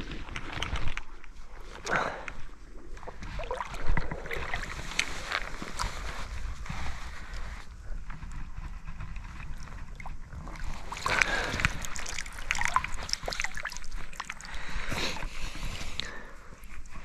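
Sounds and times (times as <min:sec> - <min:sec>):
water splashing in a river: 0:02.9 - 0:06.2, 0:09.9 - 0:14.6.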